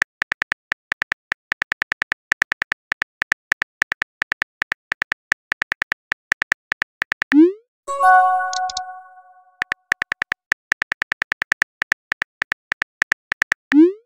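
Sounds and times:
phone keyboard typing clicks: 8.1s - 9.4s.

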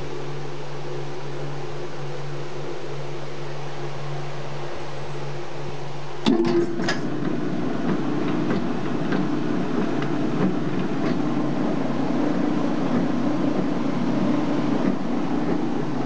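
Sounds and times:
clatter of clicks: 6.2s - 11.2s.

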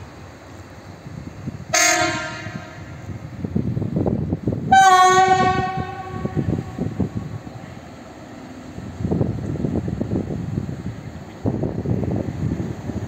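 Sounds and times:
diesel engines rumbling: 0.0s - 13.0s
train horn blasts: 1.7s - 3.0s, 4.7s - 7.0s.

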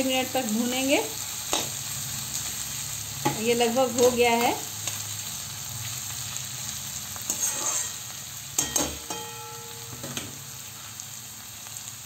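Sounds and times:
vegetables sizzling in hot oil: 0.0s - 12.0s
spatula scraping and knocking pan: 7.3s - 8.0s.

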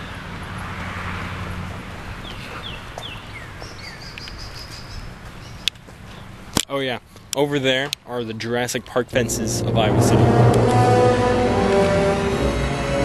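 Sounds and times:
bird chirping: 2.2s - 6.4s
truck engine humming: 9.1s - 13.0s.

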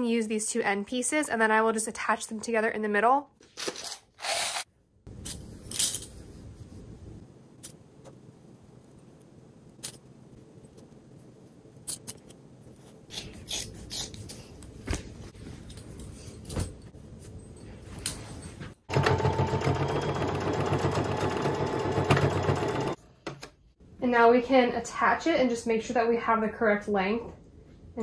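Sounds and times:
sewing machine running: 18.9s - 23.0s.

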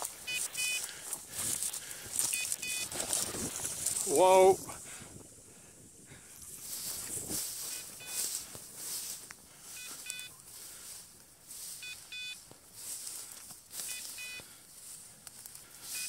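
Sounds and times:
tall grass swishing against legs: 0.0s - 16.0s
double electronic beeps: 0.2s - 0.9s, 2.3s - 3.0s, 7.6s - 8.4s, 9.8s - 10.4s, 11.7s - 12.4s, 13.8s - 14.4s.

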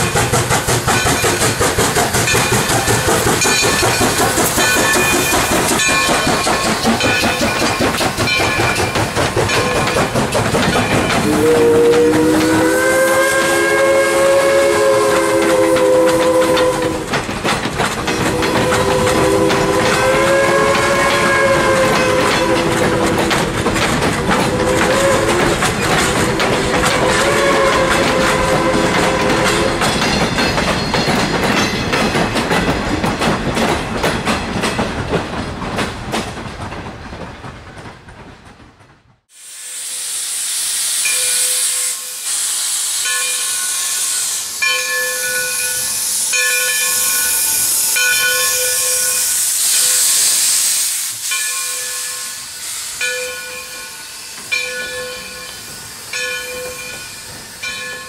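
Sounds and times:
locomotive bell ringing: 0.0s - 13.2s, 18.1s - 23.5s, 24.5s - 32.5s, 41.0s - 42.2s, 43.0s - 49.9s, 51.2s - 58.0s
steam locomotive hissing: 0.0s - 38.3s, 39.2s - 58.0s
railroad cars clattering over joints: 0.0s - 39.3s, 53.0s - 58.0s.

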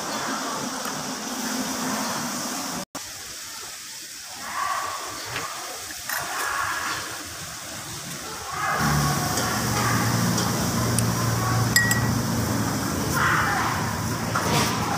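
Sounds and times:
faint voices: 3.4s - 14.9s.

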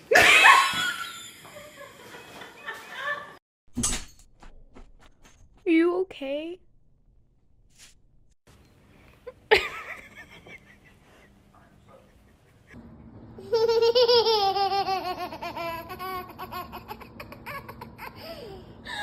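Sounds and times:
toddler giggling: 13.5s - 18.6s.

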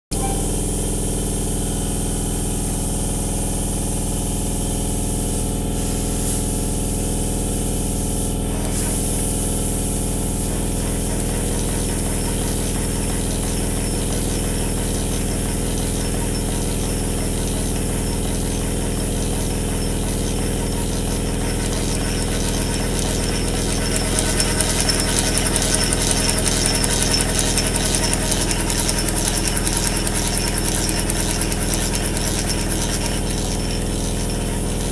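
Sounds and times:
model steam engine running: 9.9s - 34.9s
fast rhythmic ticking: 11.2s - 34.9s
air compressors humming: 15.4s - 34.9s.

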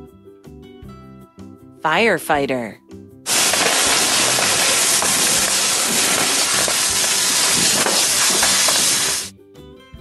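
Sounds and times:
fire hose water jet spraying: 3.3s - 9.3s.

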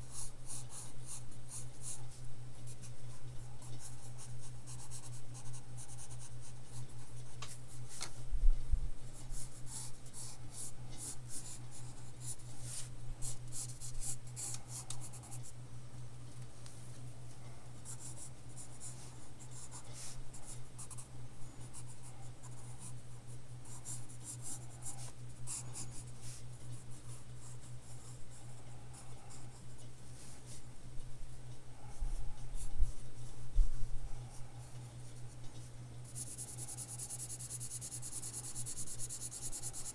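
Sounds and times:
pencil scratching on paper: 36.1s - 39.9s.

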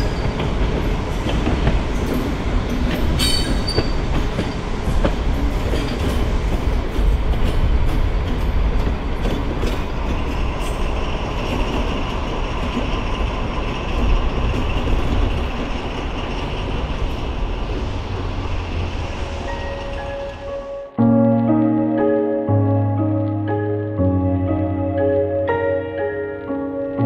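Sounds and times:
wheels clicking over rail joints: 0.0s - 18.3s
diesel locomotive engines rumbling: 0.0s - 21.0s.

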